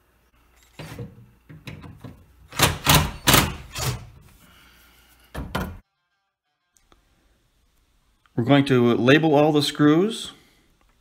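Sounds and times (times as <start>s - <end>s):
impact driver hammering: 2.5s - 4.1s.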